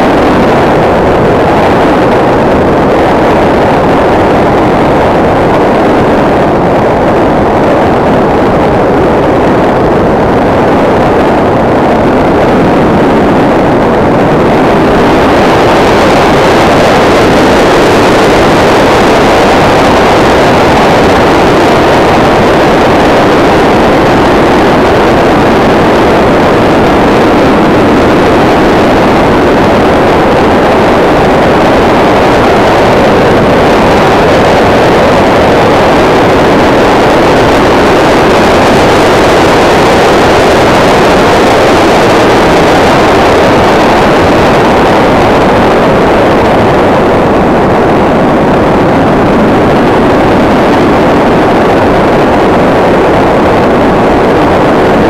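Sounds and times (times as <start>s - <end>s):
airflow rushing: 0.0s - 55.0s.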